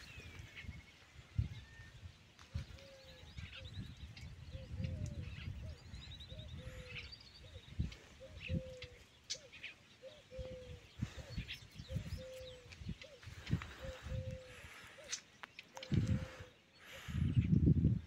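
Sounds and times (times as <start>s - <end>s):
small birds chirping: 0.0s - 18.0s
dove cooing: 4.6s - 16.6s.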